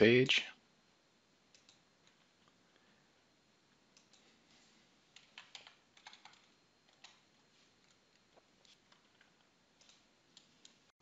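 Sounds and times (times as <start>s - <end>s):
mouse and keyboard clicks: 7.8s - 10.8s.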